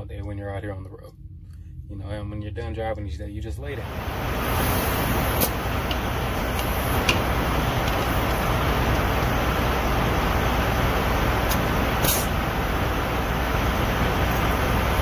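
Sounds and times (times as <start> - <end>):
truck engines rumbling: 3.6 - 15.0
air hissing into tire: 3.8 - 15.0.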